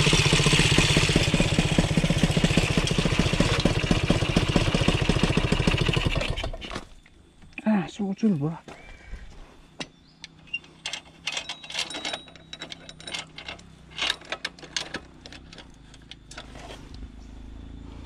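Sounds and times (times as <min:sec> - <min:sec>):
low steady hum: 0:06.2 - 0:18.0.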